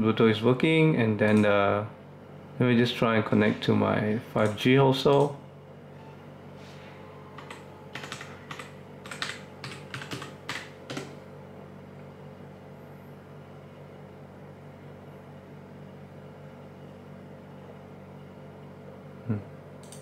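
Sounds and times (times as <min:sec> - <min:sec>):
steady low hum: 0:00.0 - 0:20.0
typing on computer keyboard: 0:07.4 - 0:11.2.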